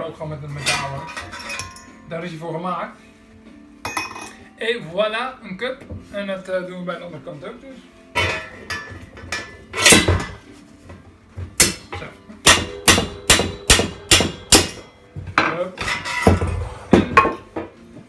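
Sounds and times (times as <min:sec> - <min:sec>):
hammer knocking on metal drift: 0:12.4 - 0:14.9.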